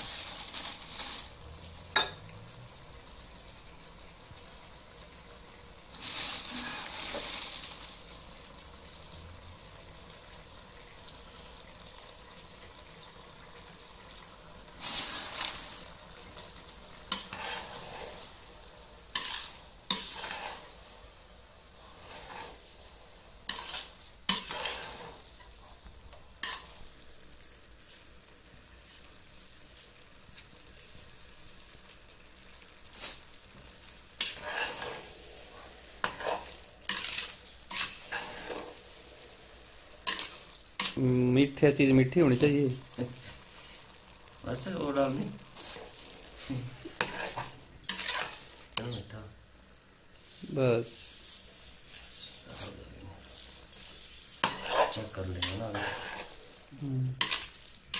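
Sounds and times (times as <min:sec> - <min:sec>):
faint sizzling: 0:00.0 - 0:57.9
metal ladle scraping a pot: 0:17.1 - 0:18.4, 0:19.1 - 0:20.8, 0:21.9 - 0:25.6, 0:34.1 - 0:38.8, 0:40.0 - 0:41.0, 0:45.5 - 0:48.6, 0:53.4 - 0:56.4.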